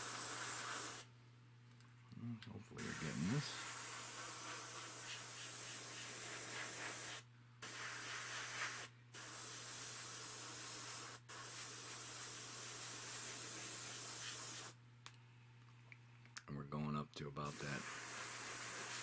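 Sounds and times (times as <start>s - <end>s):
airbrush hissing: 0.0s - 1.1s, 2.8s - 14.8s, 17.4s - 19.0s.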